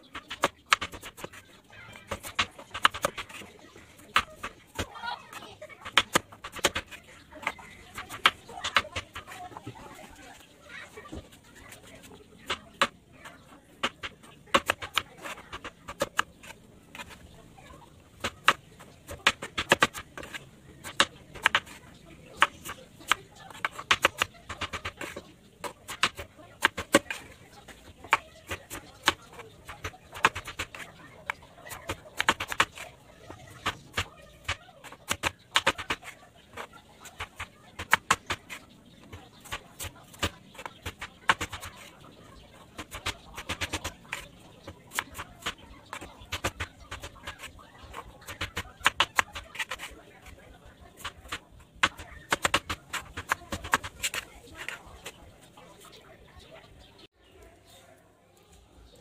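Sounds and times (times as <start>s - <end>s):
knife chopping on cutting board: 18.2s - 21.8s, 22.4s - 41.9s, 42.8s - 50.0s, 51.0s - 55.2s.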